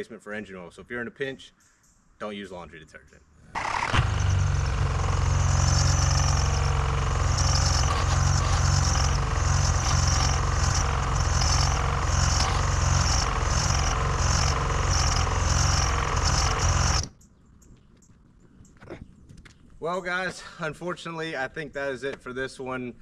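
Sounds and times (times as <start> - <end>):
starter motor cranking engine: 3.5 - 17.1.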